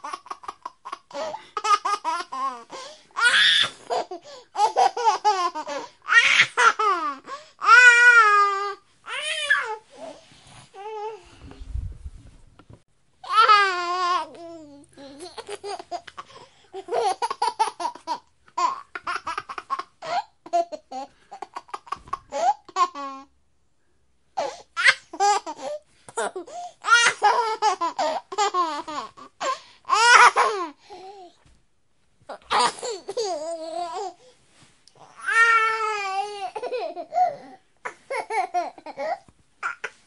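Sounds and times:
baby laughing: 0.0 - 9.8, 15.0 - 23.3, 24.4 - 30.8, 32.3 - 34.2, 35.0 - 40.0.

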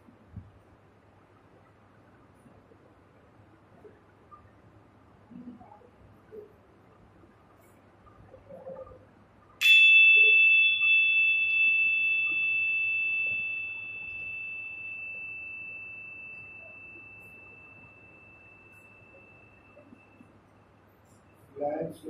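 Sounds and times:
bell ringing: 9.6 - 20.3.

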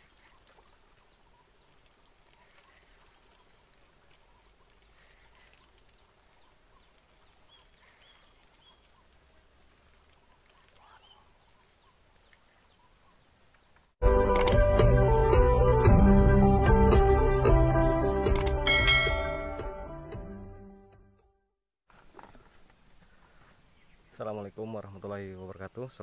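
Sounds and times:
insects trilling: 0.0 - 14.0, 21.9 - 26.0.

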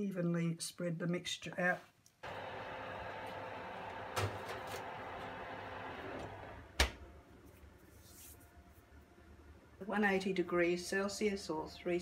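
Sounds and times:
oven humming: 2.2 - 7.4
oven door shutting: 3.0 - 7.0.

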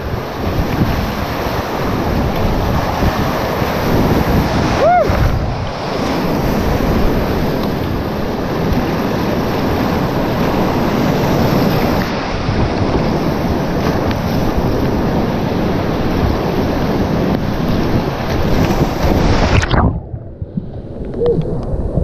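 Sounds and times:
whitewater rapids roaring: 0.0 - 12.6.

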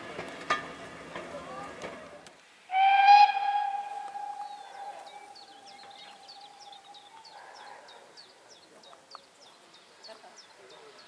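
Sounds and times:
steam locomotive whistle: 2.7 - 5.2
birds chirping: 2.7 - 11.0.

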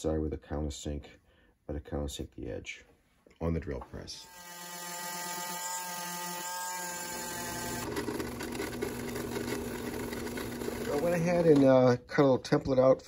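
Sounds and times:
drill press motor whine: 5.1 - 11.5.

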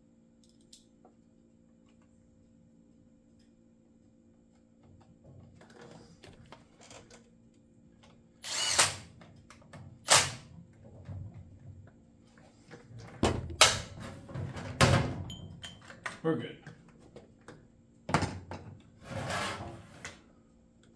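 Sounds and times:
cordless drill running: 8.4 - 9.0.

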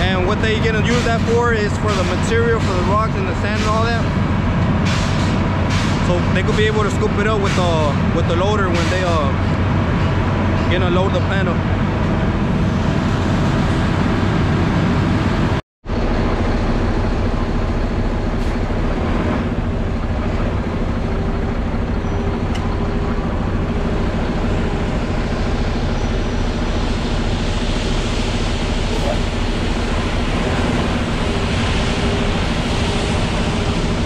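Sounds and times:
diesel engine running: 0.0 - 34.0.

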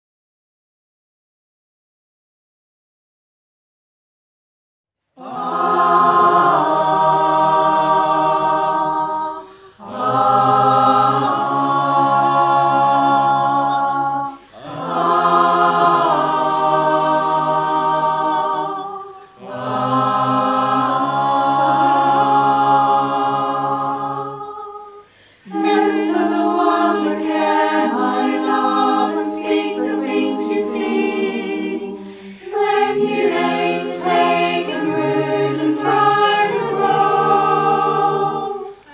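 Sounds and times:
choir singing a cappella: 5.2 - 38.9.

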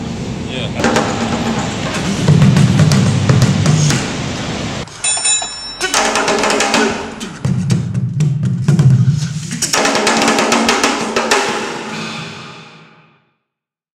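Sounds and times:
drum-led percussion music: 0.8 - 4.1, 4.9 - 12.0.

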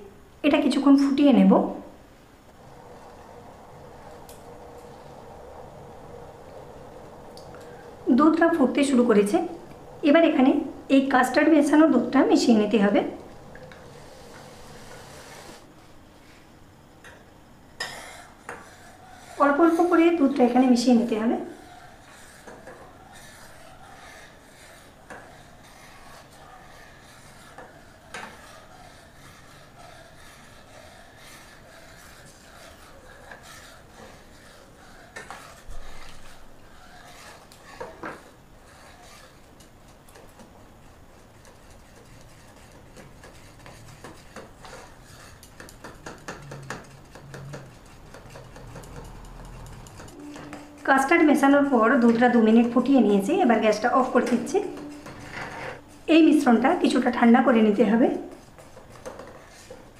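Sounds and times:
spoon stirring in saucepan: 18.0 - 39.7.

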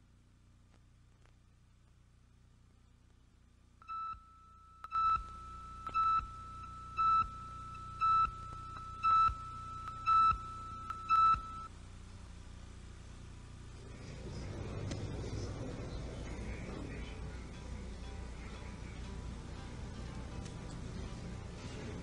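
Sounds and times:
faint steady tone: 3.8 - 11.8.

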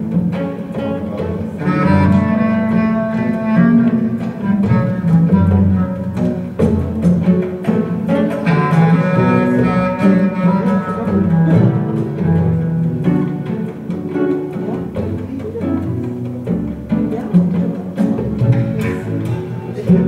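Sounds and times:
low string instruments music: 0.0 - 20.0.

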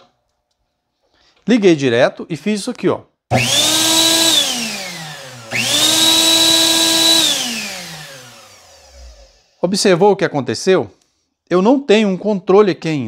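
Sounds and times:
blender motor whining: 3.3 - 9.6.

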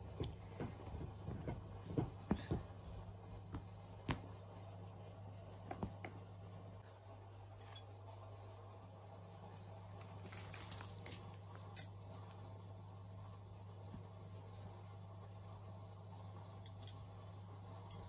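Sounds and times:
cat pawing on carpet: 0.0 - 4.4
steady low hum: 0.0 - 18.0.

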